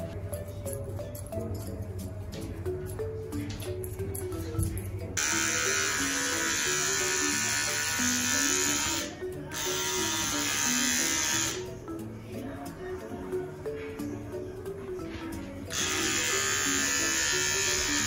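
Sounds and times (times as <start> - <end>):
electric pet clipper buzzing: 5.2 - 11.7, 15.7 - 18.0.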